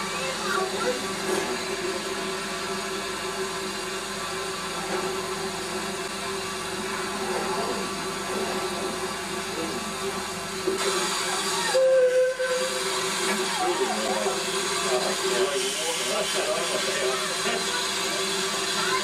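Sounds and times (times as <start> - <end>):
train running hum: 0.0 - 19.0.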